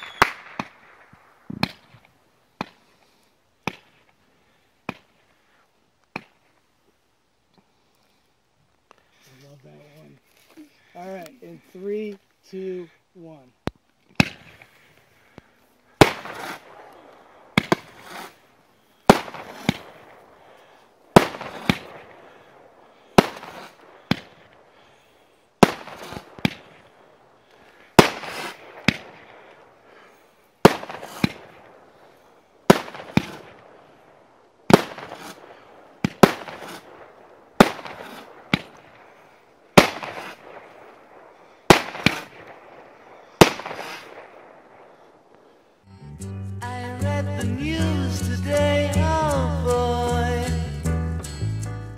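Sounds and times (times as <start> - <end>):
firework bangs with rumbling echo: 16.0 - 16.7, 19.1 - 20.3, 21.2 - 22.2, 28.0 - 29.4, 39.8 - 44.9.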